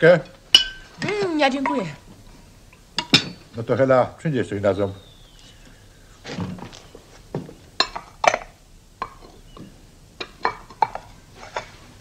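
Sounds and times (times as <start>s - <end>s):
plates and cutlery clinking: 0.2s - 1.9s, 3.0s - 3.5s, 10.2s - 11.8s.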